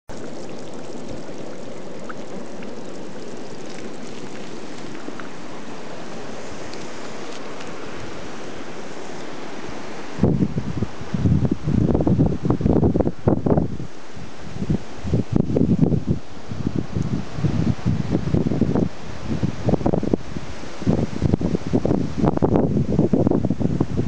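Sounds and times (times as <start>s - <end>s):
water trickling between stones: 0.1s - 9.7s
wind buffeting microphone: 0.1s - 24.0s.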